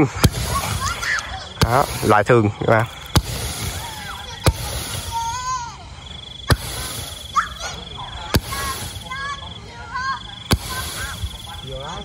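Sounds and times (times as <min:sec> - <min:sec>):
firework pops: 0:00.0 - 0:05.7, 0:06.4 - 0:09.4, 0:10.4 - 0:12.0
firework fountain hissing: 0:00.0 - 0:12.0.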